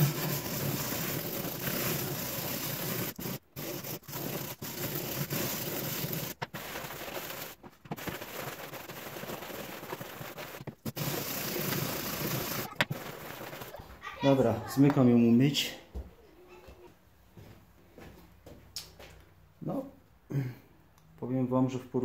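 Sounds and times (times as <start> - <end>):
wire brush scraping metal: 0.0 - 13.8.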